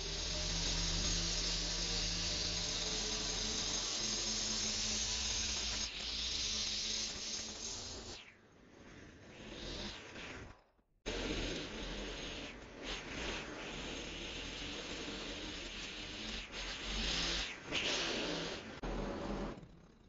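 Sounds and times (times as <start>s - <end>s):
string trimmer cutting grass: 0.0s - 8.1s.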